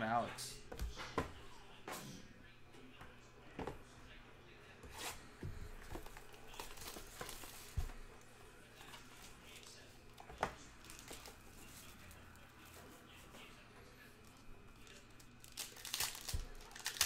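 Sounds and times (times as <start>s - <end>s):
plastic wrapper crinkling: 10.8s - 12.2s, 14.3s - 17.0s.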